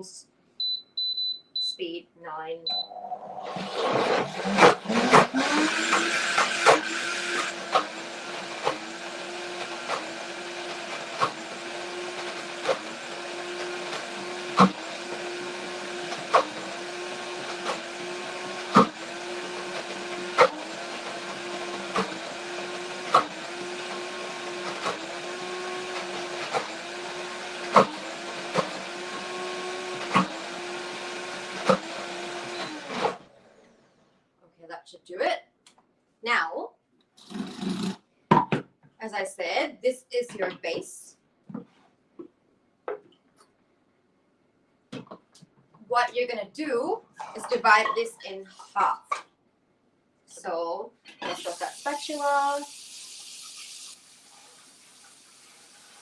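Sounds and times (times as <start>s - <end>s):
blender blending thick mixture: 3.2s - 33.8s, 37.2s - 38.0s, 51.2s - 56.0s.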